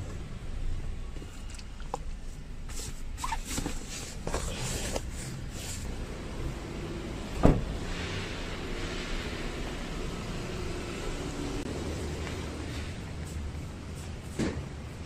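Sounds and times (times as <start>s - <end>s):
car door shutting: 7.4s - 7.7s.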